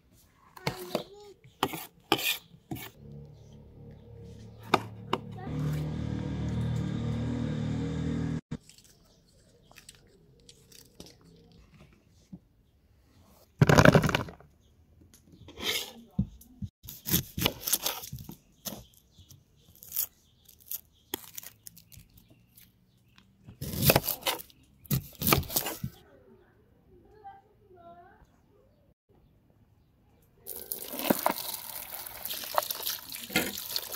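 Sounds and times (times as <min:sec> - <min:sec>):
kitchen food preparation noise: 0:00.0 - 0:07.2, 0:15.2 - 0:26.1, 0:30.4 - 0:33.9.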